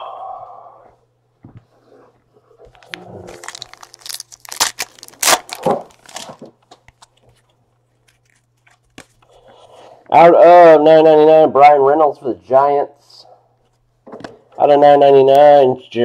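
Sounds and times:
wrapper torn open and crinkled: 2.8 - 6.5.

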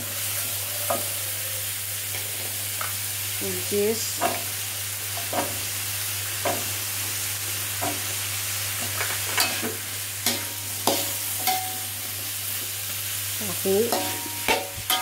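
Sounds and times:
vegetables sizzling in oil: 0.0 - 15.0
metal spatula scraping a wok: 13.7 - 15.0.

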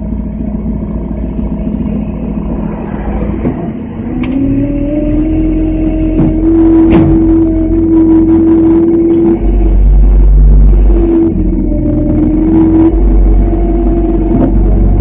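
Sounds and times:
engine running and revving: 0.0 - 15.0.

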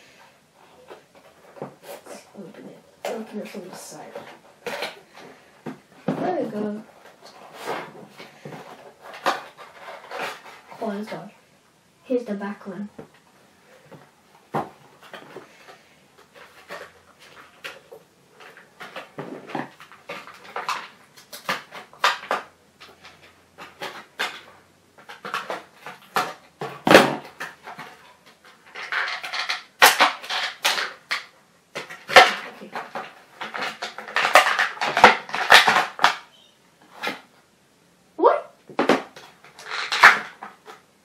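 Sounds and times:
plastic packaging crinkling: 14.5 - 37.3, 39.0 - 40.9.

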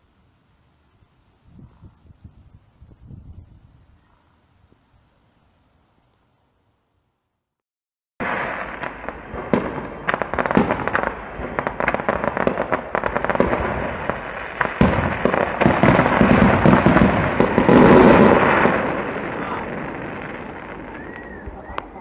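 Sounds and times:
sharp bangs and crackles: 8.2 - 22.0.

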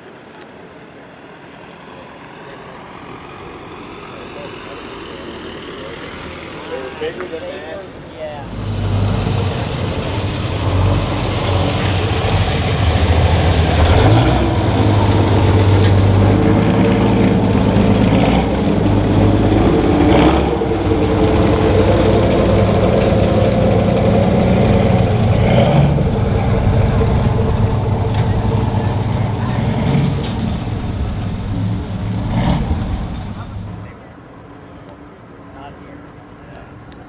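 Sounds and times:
vehicle engine running: 8.5 - 34.0.

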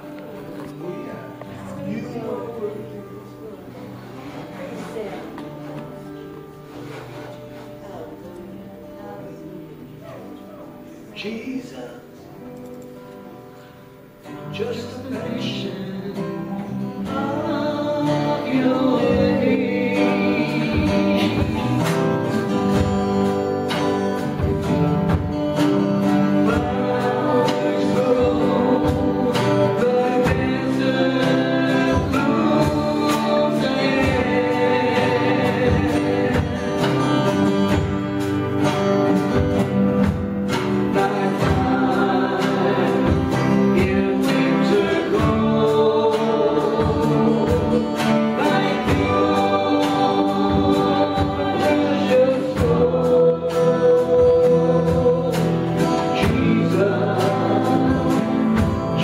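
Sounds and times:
strummed acoustic guitars: 0.0 - 59.0
women singing worship song: 16.4 - 22.2, 26.2 - 37.4, 40.8 - 59.0.

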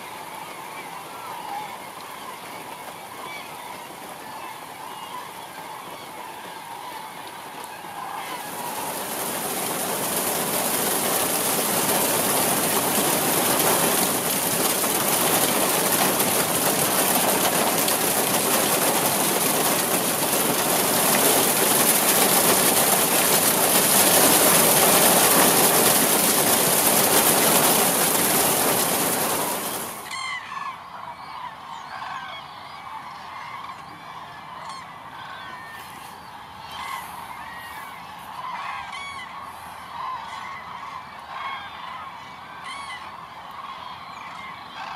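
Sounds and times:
heavy rain: 0.0 - 30.1
flock of cranes calling: 0.0 - 44.9.

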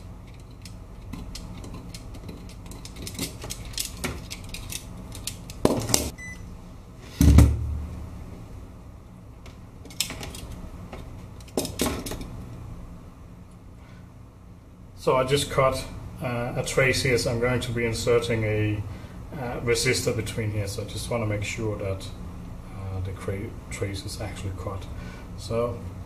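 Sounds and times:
heavy thump: 7.2 - 7.9.

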